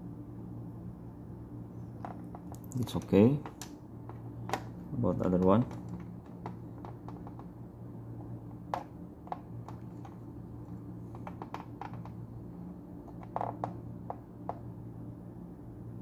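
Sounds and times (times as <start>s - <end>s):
test leads clicking and tapping: 3.4s - 7.5s, 8.5s - 12.2s.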